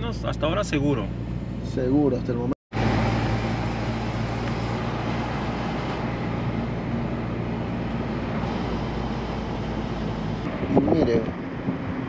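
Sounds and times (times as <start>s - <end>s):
car engine hum: 0.0s - 12.0s
tyre and road noise: 2.7s - 12.0s.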